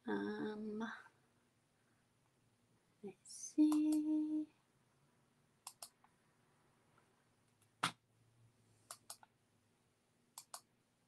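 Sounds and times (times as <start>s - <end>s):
computer mouse clicks: 5.6s - 6.0s, 8.9s - 9.3s, 10.4s - 10.7s.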